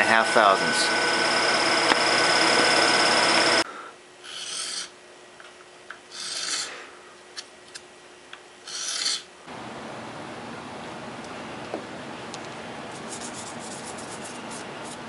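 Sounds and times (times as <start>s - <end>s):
milling machine cutting wood: 0.0s - 3.6s
file rasping on wood: 4.3s - 4.9s, 6.1s - 6.7s.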